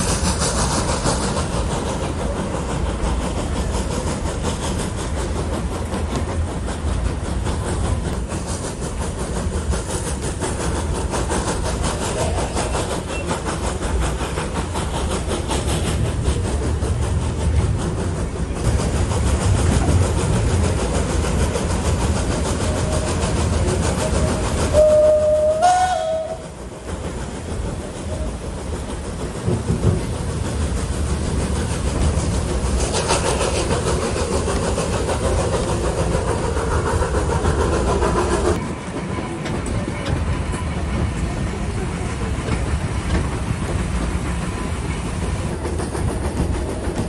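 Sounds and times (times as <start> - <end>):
train rumble and clatter: 0.0 - 47.0
steam locomotive whistle: 23.9 - 26.6.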